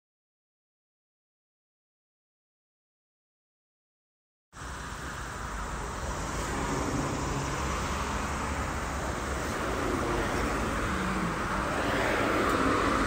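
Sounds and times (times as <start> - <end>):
road traffic noise: 4.6 - 13.0.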